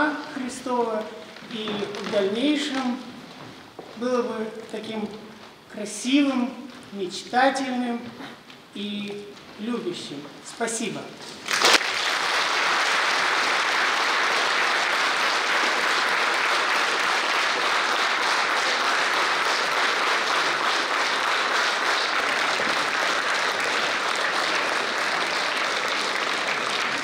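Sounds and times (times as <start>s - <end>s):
audience applauding: 11.4s - 27.0s.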